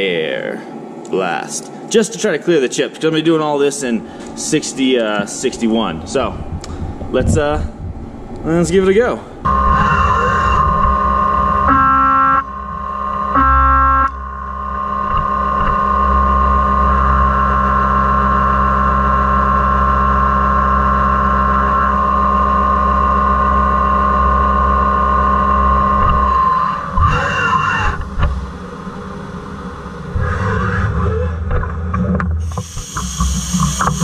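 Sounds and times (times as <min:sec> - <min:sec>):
spindle motor hum: 0:03.4 - 0:34.0
uneven mechanical sounds: 0:03.4 - 0:34.0
milling cutter singing tone: 0:09.4 - 0:28.4, 0:32.5 - 0:34.0.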